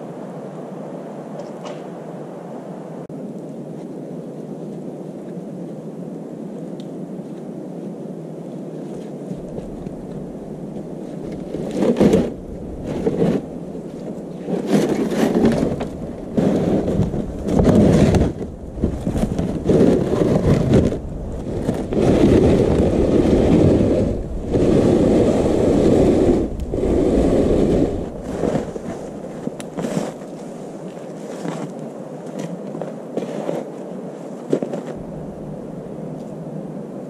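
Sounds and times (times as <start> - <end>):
plastic sled scraping over snow: 8.8 - 35.5.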